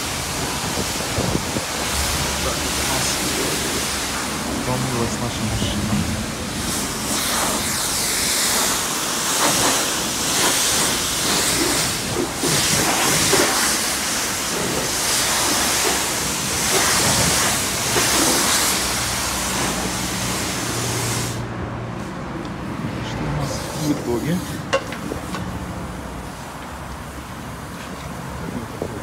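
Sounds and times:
pressure washer spraying water: 0.0 - 21.5.

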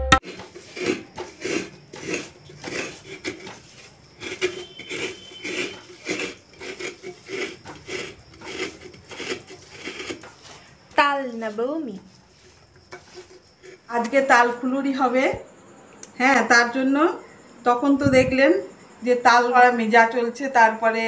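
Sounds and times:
hand scraping strokes: 0.2 - 13.9.

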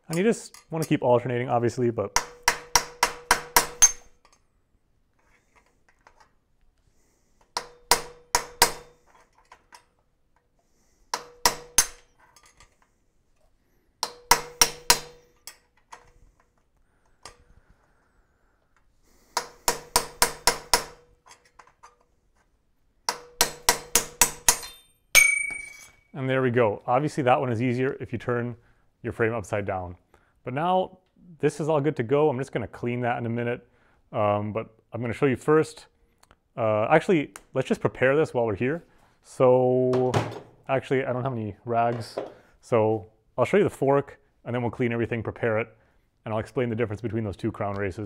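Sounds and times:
hammer tapping steel punch: 2.1 - 4.4, 7.5 - 9.0, 11.1 - 12.1, 14.0 - 16.1, 19.3 - 21.7, 23.1 - 25.8
metallic ringing tone: 24.7 - 26.1.

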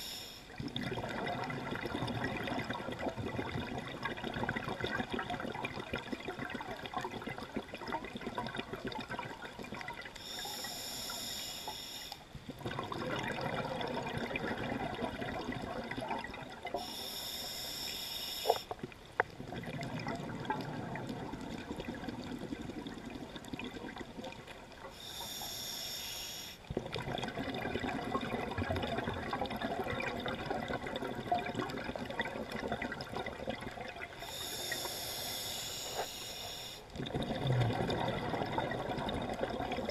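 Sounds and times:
diver breathing through regulator: 10.2 - 12.2, 16.8 - 18.7, 24.9 - 26.6, 34.2 - 36.9.

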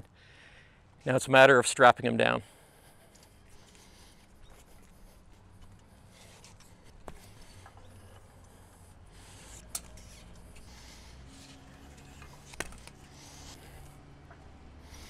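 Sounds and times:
rubbing and rustling: 9.2 - 13.9.

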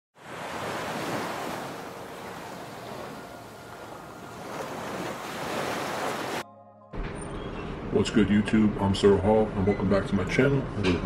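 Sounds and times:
ocean waves breaking on beach: 0.2 - 6.4.

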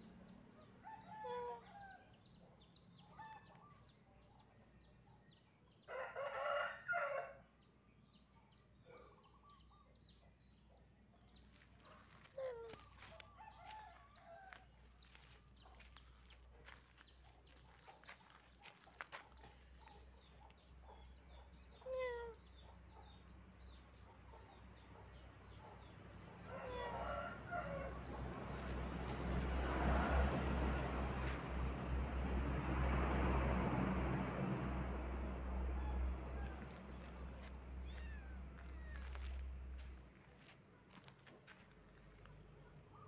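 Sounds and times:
small birds chirping: 7.9 - 27.3, 35.2 - 43.0.

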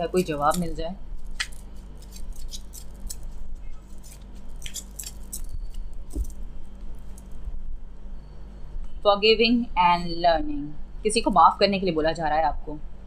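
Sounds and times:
cards being shuffled: 0.1 - 7.3.

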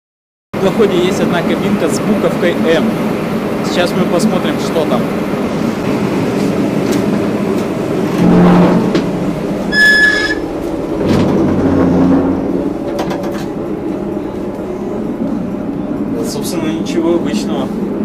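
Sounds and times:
boat engine rumble and rattle: 0.6 - 18.0
low hum: 5.1 - 18.0
short high squeak: 9.7 - 10.5.

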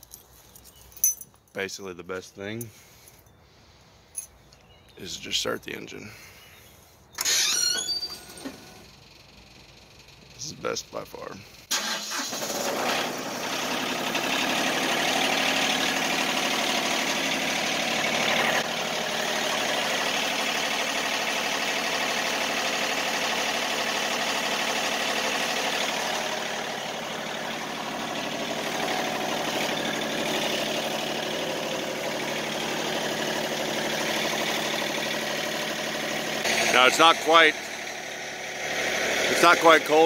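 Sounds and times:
sawmill engine running: 11.7 - 40.0.

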